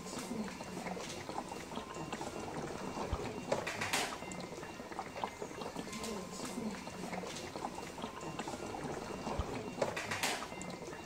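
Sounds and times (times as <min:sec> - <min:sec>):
water bubbling in drainage unit: 0:00.0 - 0:11.0.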